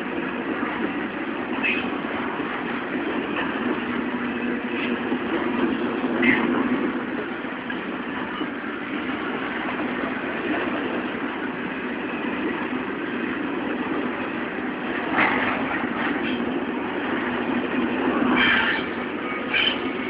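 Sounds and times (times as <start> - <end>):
train wheels rolling on track: 0.0 - 20.0.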